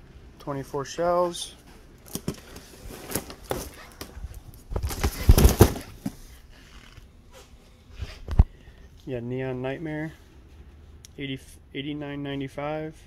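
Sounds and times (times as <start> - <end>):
rustling thumps: 2.1 - 6.4.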